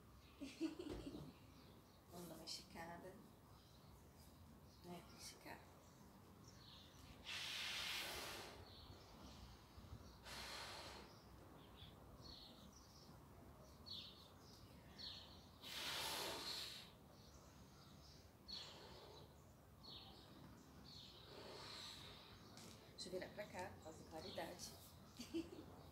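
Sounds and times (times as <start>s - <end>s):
breathy exhales: 10.2s - 11.2s.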